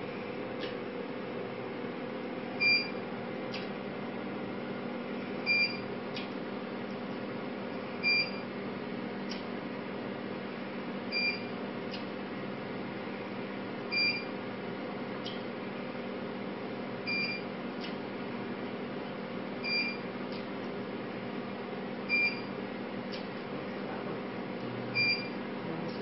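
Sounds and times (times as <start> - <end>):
short high beeps: 25.0 - 25.3.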